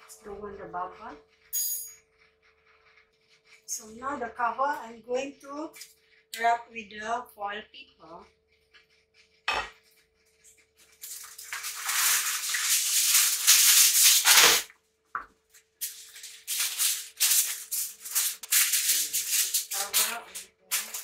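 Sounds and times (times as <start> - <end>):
aluminium foil crinkling: 8.6 - 14.7, 15.4 - 21.0.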